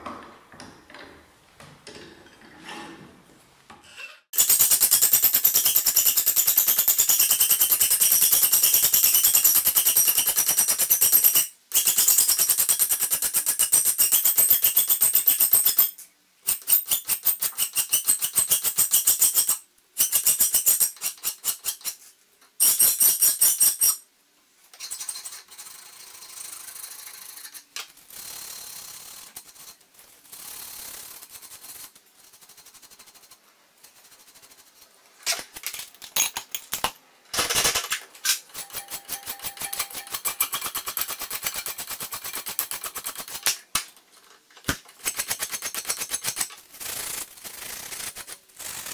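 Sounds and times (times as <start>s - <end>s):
quiet scraping and handling: 0.0s - 4.3s.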